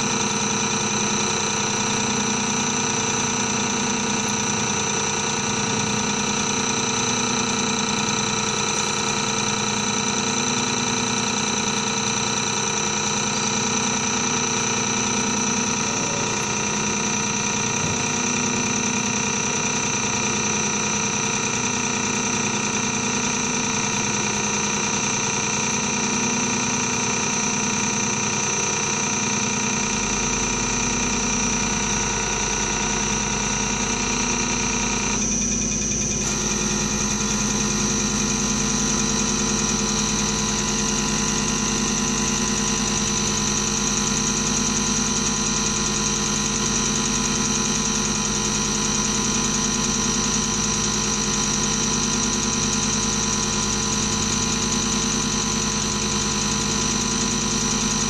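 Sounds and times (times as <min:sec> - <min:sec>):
machine whine and hum: 0:00.0 - 0:58.0
deeper hum: 0:15.6 - 0:19.5.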